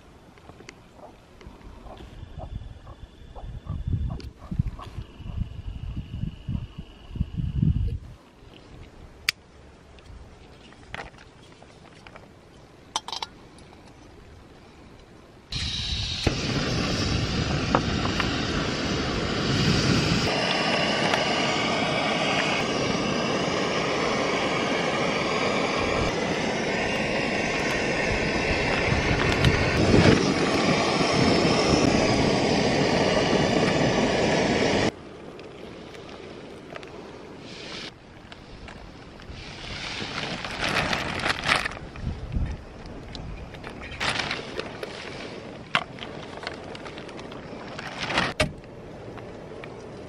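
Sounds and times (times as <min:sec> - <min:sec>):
gas stove hissing: 0:15.5 - 0:35.0, 0:37.4 - 0:38.0.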